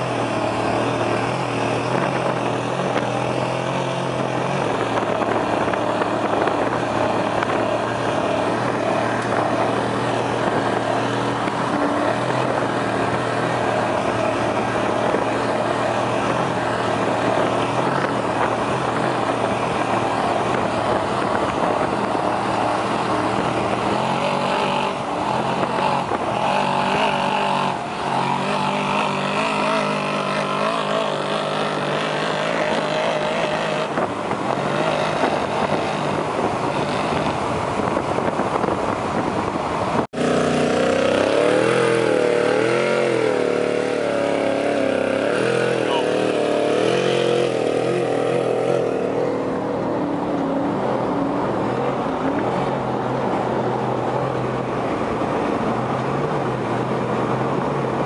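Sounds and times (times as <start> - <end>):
truck engine revving: 0.0 - 58.0.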